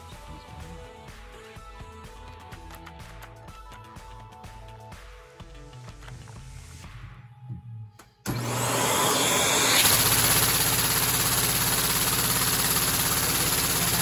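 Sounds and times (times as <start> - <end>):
vacuum cleaner air rushing: 8.3 - 14.0.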